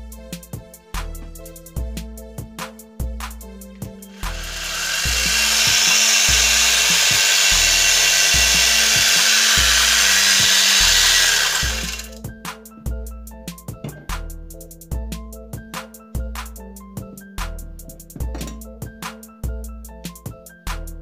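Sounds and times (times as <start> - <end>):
background music with steady beat: 0.0 - 21.0
chainsaw attachment running: 4.2 - 12.2.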